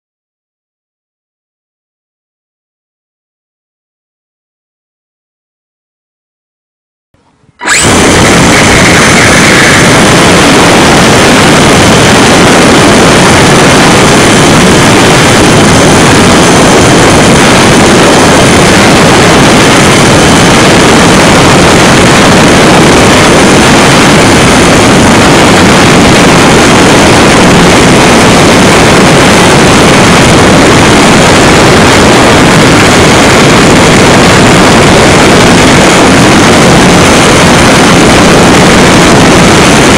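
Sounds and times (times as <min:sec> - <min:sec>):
air rushing past: 0:07.6 - 0:25.1
electric motor and propeller buzz: 0:07.6 - 0:39.9.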